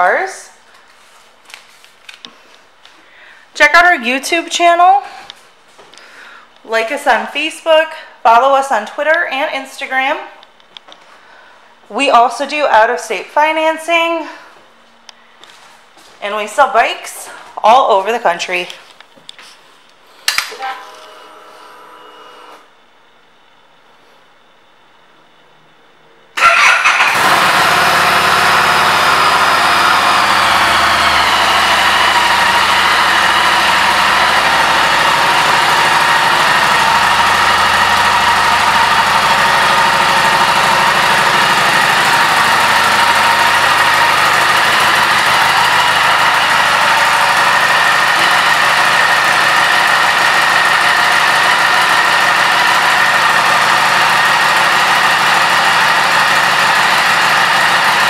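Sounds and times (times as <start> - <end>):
motorcycle engine starting and idling: 26.4 - 58.0.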